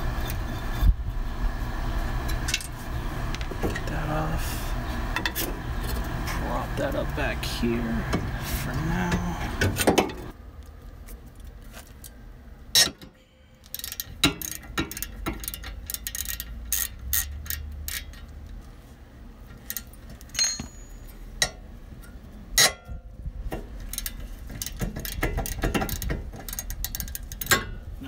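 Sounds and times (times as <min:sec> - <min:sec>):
hand ratchet clicking: 0:13.6 - 0:18.6, 0:23.8 - 0:27.6.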